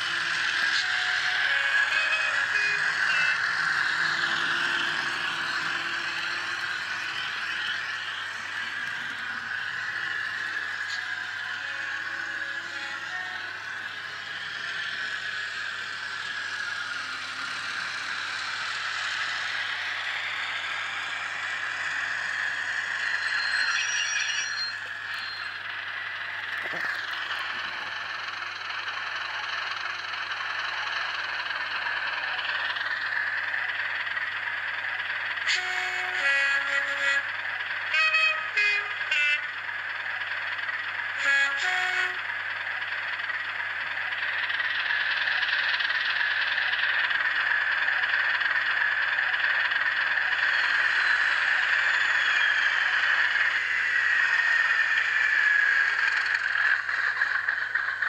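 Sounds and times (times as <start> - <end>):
whistling whine falling in pitch: 0.0 - 39.6, 43.2 - 58.0
diesel engine sound through small speaker: 0.0 - 58.0
two-tone horn blasts: 35.5 - 37.3, 37.9 - 39.6, 41.2 - 42.2.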